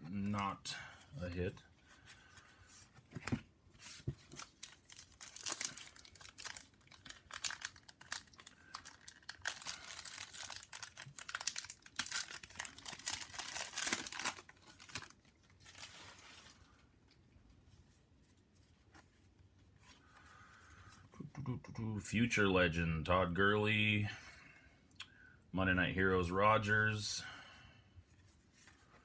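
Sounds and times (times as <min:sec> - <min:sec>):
foil wrapper tearing and crinkling: 0:04.4 - 0:16.5.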